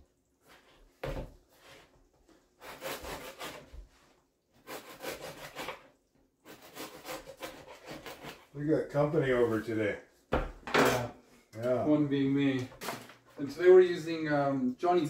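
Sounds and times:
knife sawing through bread: 0:02.6 - 0:03.8, 0:04.6 - 0:08.6.

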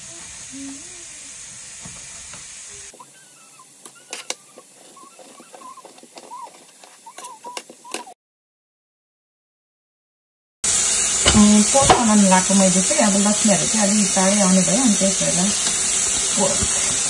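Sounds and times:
steady hiss: 0:00.0 - 0:07.0, 0:10.6 - 0:17.0.

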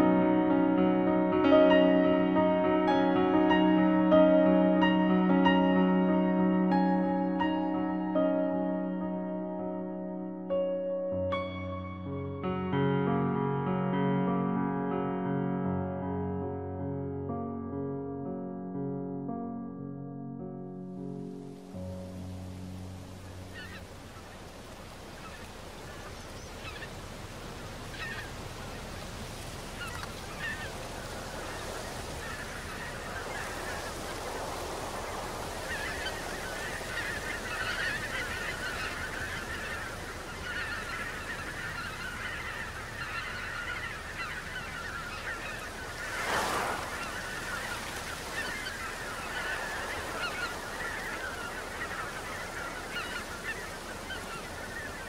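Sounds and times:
geese honking: 0:23.2 - 0:55.0.

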